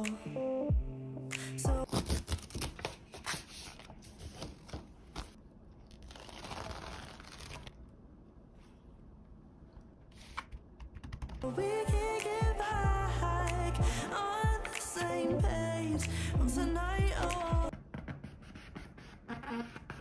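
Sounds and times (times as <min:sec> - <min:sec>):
background music with singing: 0:00.0 - 0:01.9, 0:11.4 - 0:17.7
packaging crinkling and tearing: 0:04.2 - 0:07.8.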